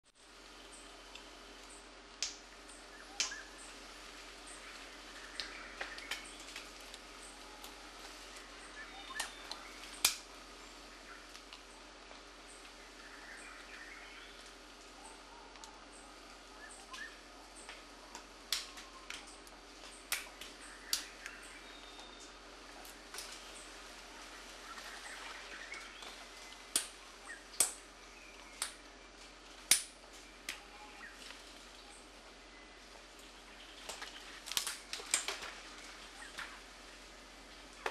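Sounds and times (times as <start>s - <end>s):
faint bird chirps: 2.6s - 3.8s, 4.4s - 10.0s, 10.6s - 22.5s, 23.3s - 29.3s, 30.2s - 37.0s
faint high chirp: 8.6s - 9.9s, 13.0s - 17.7s, 20.6s - 22.4s.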